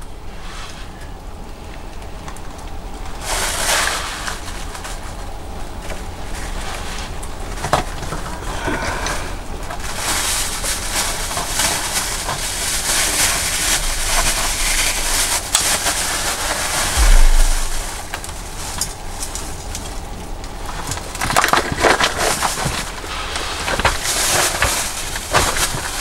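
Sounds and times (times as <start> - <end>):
plastic bag rustling: 9.9 - 18.7
low thump: 17.0 - 18.1.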